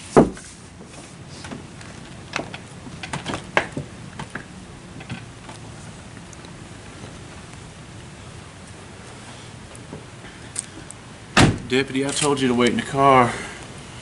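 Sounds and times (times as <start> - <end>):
steady hiss: 0.0 - 14.0
car door latch clicks: 11.4 - 11.7
car door thump: 11.4 - 11.7.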